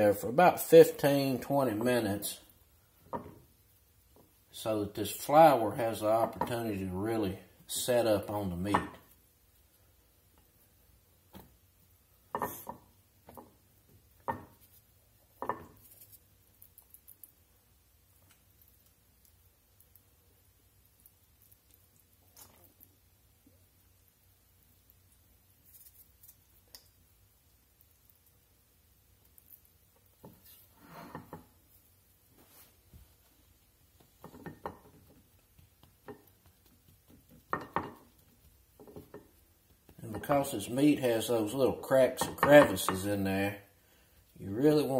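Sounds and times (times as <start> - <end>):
rustles of flour: 14.5 - 34.3.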